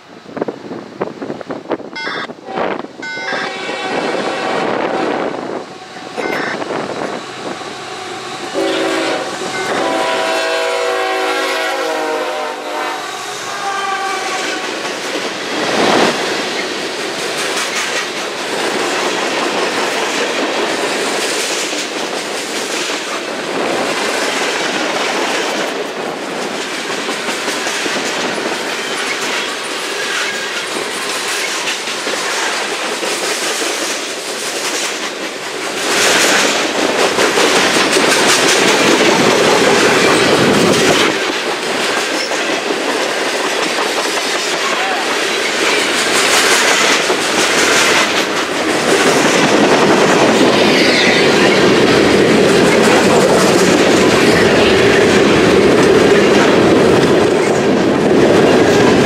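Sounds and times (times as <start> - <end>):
locomotive horn: 2.0 - 6.6, 7.4 - 14.7
freight train wheels clattering: 13.1 - 59.0.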